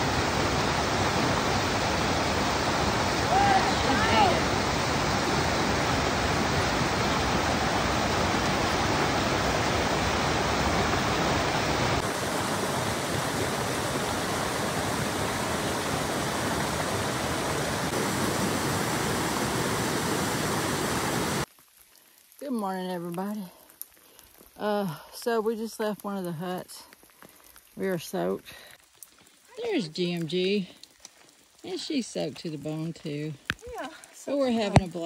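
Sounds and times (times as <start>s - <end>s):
mountain stream rushing over rocks: 0.0s - 21.5s.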